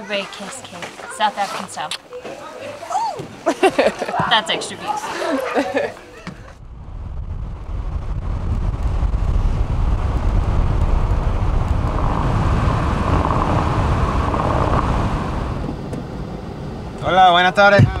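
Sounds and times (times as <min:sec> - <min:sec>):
car engine and tyre rumble: 0:06.4 - 0:18.0
wind on microphone: 0:06.6 - 0:17.0.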